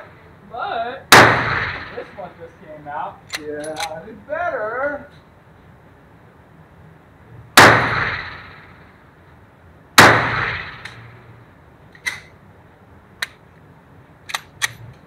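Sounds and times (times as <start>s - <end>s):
pistol shot echoing indoors: 7.6s - 8.6s.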